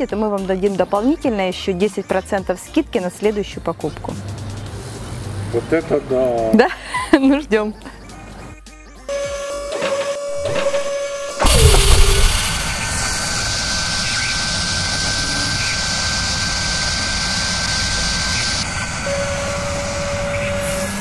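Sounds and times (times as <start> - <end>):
power drill whirring: 10.2 - 21.0
loud hit with falling whine: 10.4 - 21.0.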